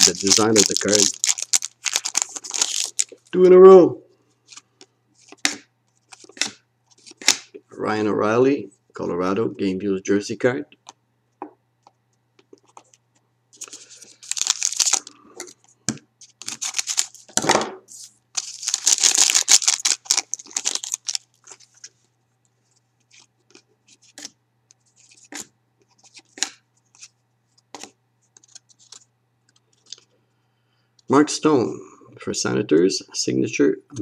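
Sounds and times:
cards clicking and rustling: 0.0s - 3.2s, 5.2s - 7.6s, 13.6s - 15.6s, 16.2s - 17.4s, 18.4s - 21.9s, 25.0s - 27.1s, 27.7s - 30.1s
foil wrapper tearing and crinkling: 0.0s - 3.2s, 13.6s - 15.1s, 16.4s - 17.3s, 18.4s - 21.6s.

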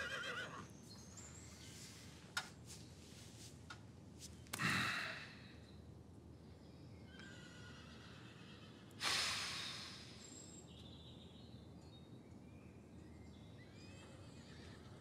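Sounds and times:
sharp exhale through the nose: 9.0s - 10.3s.

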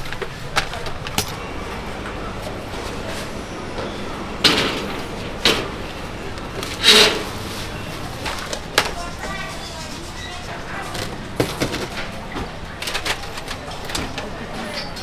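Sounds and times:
clattering knocks of objects: 0.0s - 10.2s, 10.8s - 15.0s
steady background hum: 0.0s - 14.4s
object scraping: 1.3s - 8.5s.

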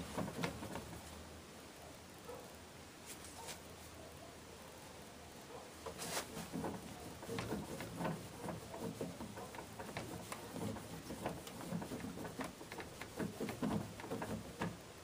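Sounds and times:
cloth rag rubbing on plastic: 5.9s - 14.7s.

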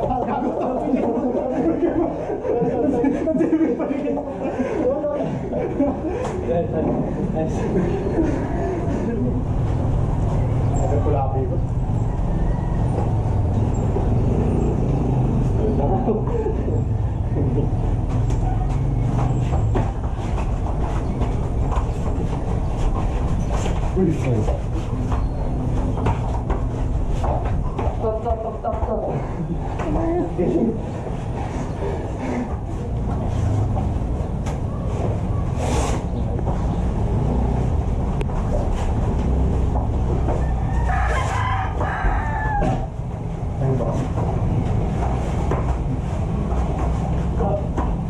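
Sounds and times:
rooster crowing: 11.9s - 13.6s, 40.2s - 43.0s
scuffs of feet and bodies on mats: 17.8s - 29.0s, 30.9s - 43.0s, 43.8s - 48.0s.

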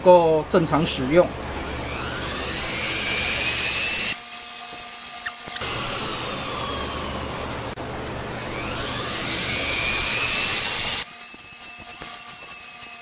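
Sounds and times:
rotary tool grinding metal: 0.9s - 7.8s, 8.4s - 13.0s.

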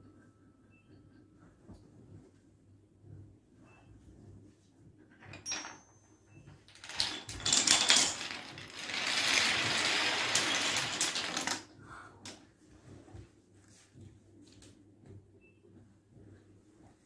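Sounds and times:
wooden dominoes toppling: 6.7s - 12.4s.

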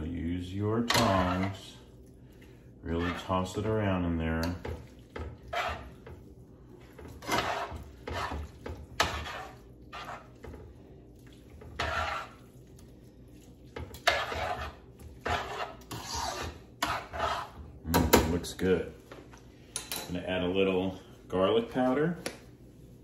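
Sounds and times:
tongs scraping and clinking on pan: 0.6s - 1.8s, 2.8s - 10.6s, 11.5s - 12.6s, 13.7s - 17.6s.

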